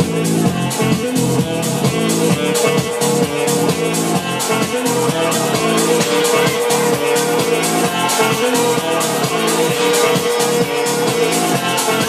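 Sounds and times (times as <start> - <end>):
dance music with steady beat: 0.0 - 12.0.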